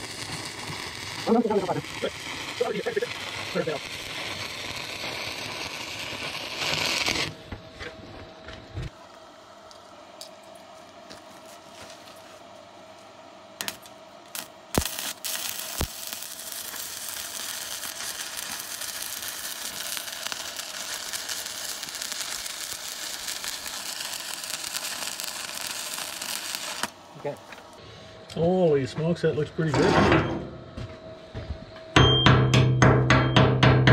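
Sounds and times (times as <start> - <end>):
welding arc crackling and hissing: 0.0 - 7.5, 13.0 - 29.7.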